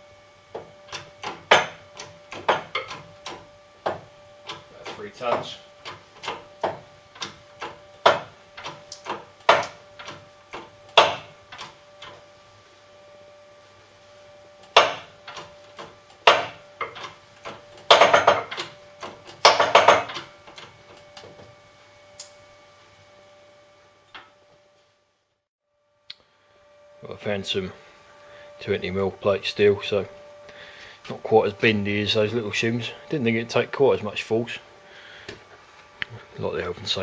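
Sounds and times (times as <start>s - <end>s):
hydraulic press metallic clicks: 0.9s - 12.2s, 14.6s - 21.3s.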